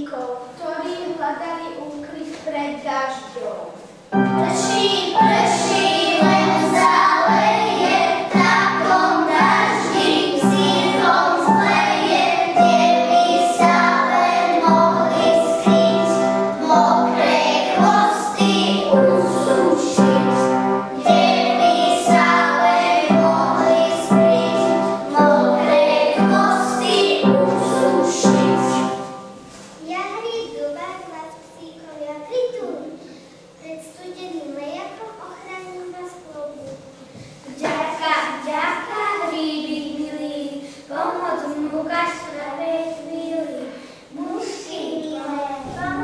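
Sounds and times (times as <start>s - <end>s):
children singing: 4.2s - 29.4s.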